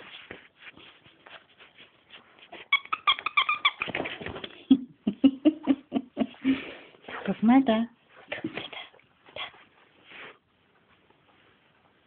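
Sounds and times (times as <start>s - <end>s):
dog toy squeaking: 2.7s - 4.0s.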